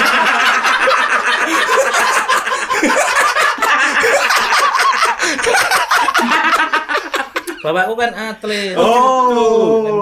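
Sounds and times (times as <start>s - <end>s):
men laughing: 0.0s - 7.7s.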